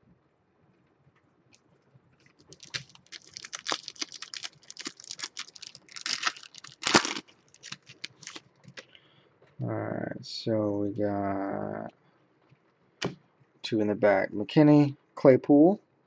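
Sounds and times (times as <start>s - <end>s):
foil wrapper tearing and crinkling: 2.4s - 8.4s.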